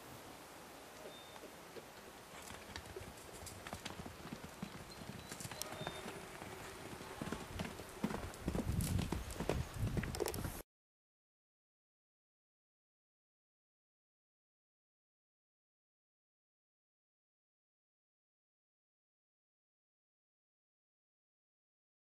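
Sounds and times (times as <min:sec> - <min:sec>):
horse hoofbeats on dirt: 0:01.1 - 0:10.6.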